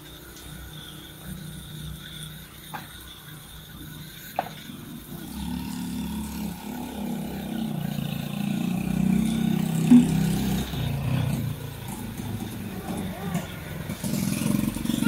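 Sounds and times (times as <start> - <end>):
vehicle engine running: 5.3 - 15.0.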